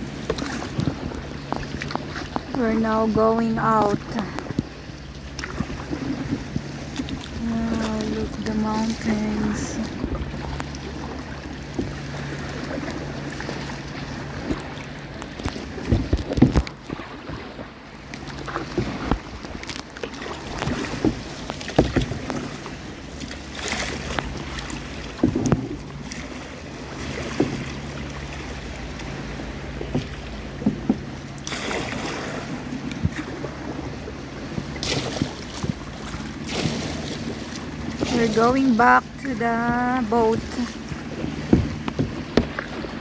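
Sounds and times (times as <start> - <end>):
paddle strokes splashing: 0.0 - 43.0
wind on microphone: 5.4 - 17.8.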